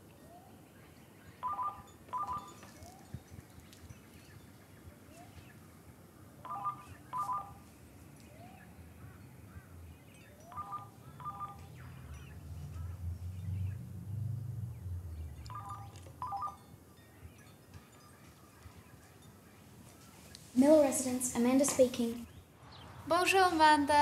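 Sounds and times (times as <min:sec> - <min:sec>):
cordless telephone ringing: 0:01.4 - 0:03.1, 0:06.4 - 0:07.6, 0:10.4 - 0:11.8, 0:15.5 - 0:16.7.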